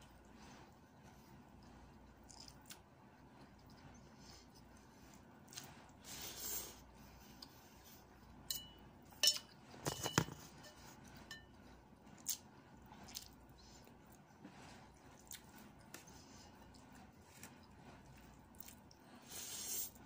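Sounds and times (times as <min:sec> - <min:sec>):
eating and chewing: 0:00.0 - 0:08.5, 0:10.4 - 0:20.0.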